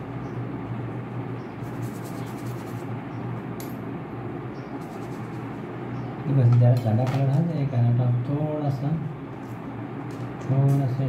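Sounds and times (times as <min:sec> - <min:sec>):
low hum and hiss: 0:00.0 - 0:11.0
paintbrush scratching on paper: 0:01.6 - 0:02.9, 0:04.8 - 0:05.5.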